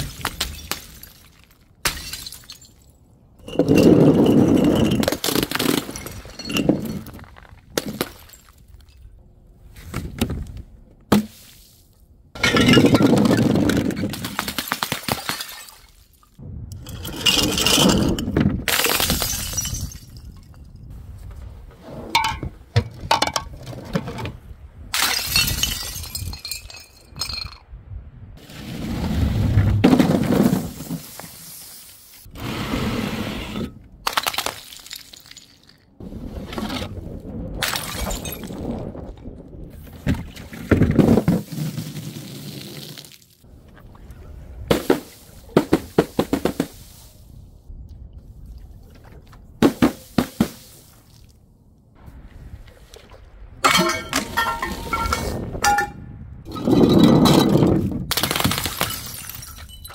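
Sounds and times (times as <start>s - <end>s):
glass bottles smashing: 0.0s - 7.1s, 12.4s - 13.6s, 15.0s - 15.9s, 17.0s - 20.4s, 25.0s - 27.6s, 34.1s - 35.8s, 53.6s - 59.9s
glass shards clinking: 53.6s - 57.6s, 58.8s - 59.9s.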